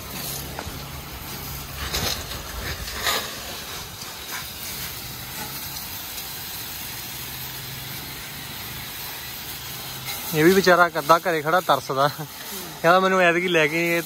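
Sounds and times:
hose water spraying on metal: 0.0s - 14.0s.

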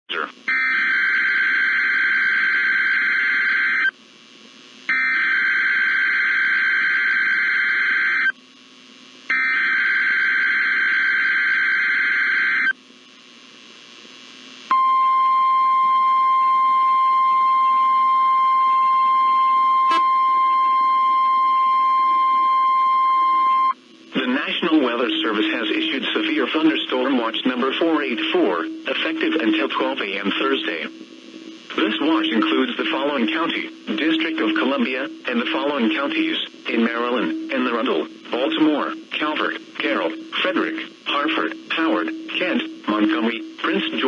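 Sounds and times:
steady warning alarm tone: 0.5s - 3.9s, 4.9s - 8.3s, 9.3s - 12.7s, 24.7s - 30.8s, 32.0s - 44.0s.

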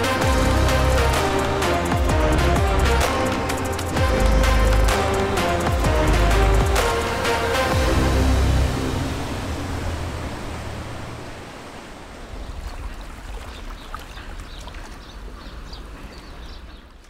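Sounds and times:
low hum: 0.0s - 12.3s
water lapping and splashing: 0.0s - 17.0s.

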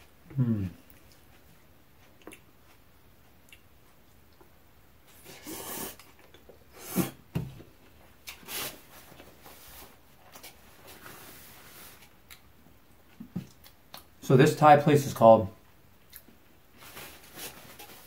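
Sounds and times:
quiet chewing: 0.3s - 6.7s, 12.0s - 14.1s, 16.0s - 16.4s
slurping noodles: 5.2s - 7.2s.

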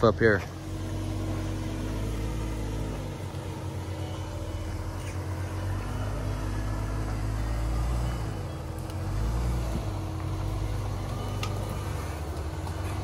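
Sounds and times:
car engine running at low revs: 0.0s - 13.0s.

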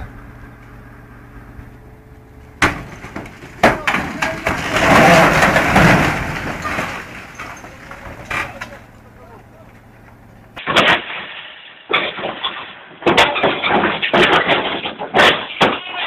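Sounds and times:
crane engine hum: 0.0s - 10.6s
cabin cracking and splintering: 2.6s - 9.0s.

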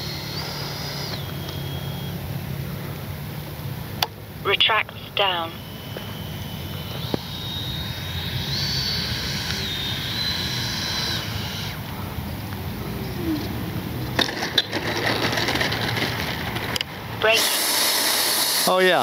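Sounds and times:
electric ducted fan whining: 0.0s - 19.0s
landing gear knocking and rattling: 14.2s - 16.8s.

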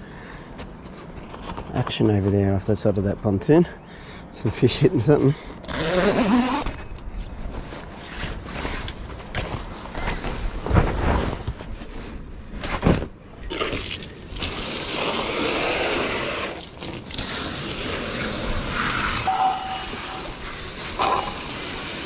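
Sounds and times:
hose spraying water: 13.5s - 22.0s.

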